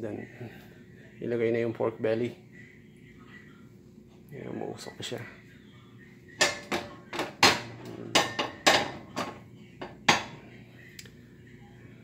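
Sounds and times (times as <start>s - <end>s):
skillet clanking on iron grate: 6.4s - 9.4s.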